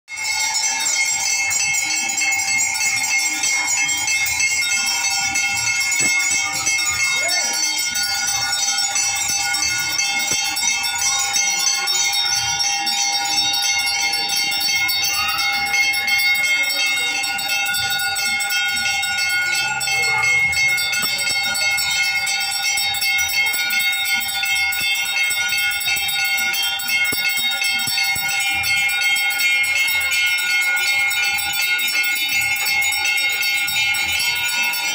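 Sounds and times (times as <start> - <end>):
temple bells ringing: 0.1 - 34.9.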